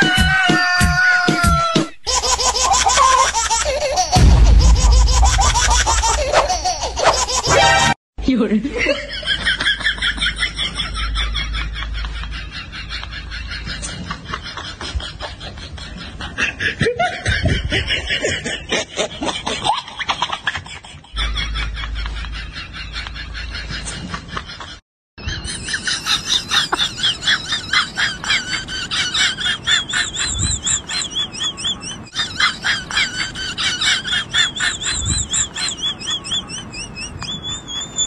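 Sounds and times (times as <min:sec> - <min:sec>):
laughter in choppy bursts: 0:02.1 - 0:07.9, 0:08.7 - 0:38.0.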